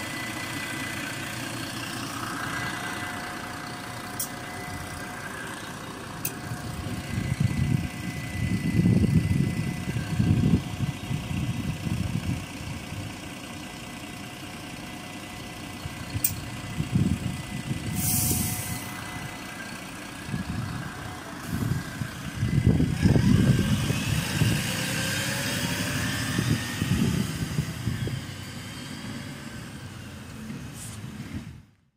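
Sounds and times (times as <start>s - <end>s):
bus diesel engine idling: 0.0s - 31.8s
compressed air hiss: 17.9s - 18.9s.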